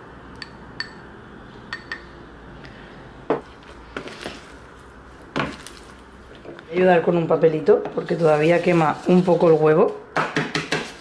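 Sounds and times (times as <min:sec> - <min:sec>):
fork tapping small bowl: 0:00.4 - 0:01.0, 0:01.7 - 0:02.1.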